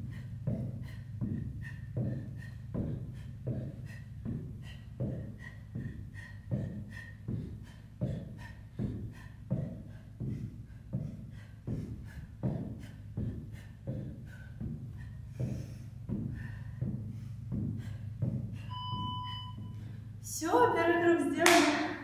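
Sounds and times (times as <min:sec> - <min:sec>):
feet thudding on wooden floor: 0:00.1 - 0:20.0.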